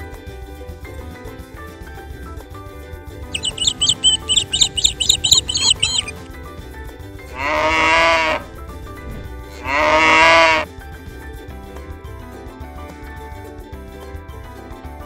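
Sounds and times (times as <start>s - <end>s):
background music: 3.0s - 15.0s
animal bleating: 7.3s - 8.6s, 9.5s - 10.7s.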